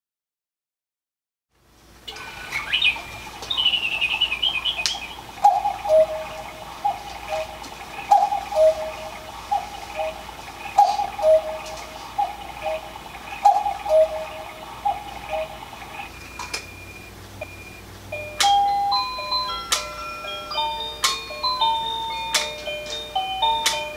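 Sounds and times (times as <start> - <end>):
electronic cuckoo call: 2.1 - 23.9
sharp clock clicks: 18.4 - 18.7, 19.6 - 20.2, 21.0 - 21.3, 22.2 - 23.9.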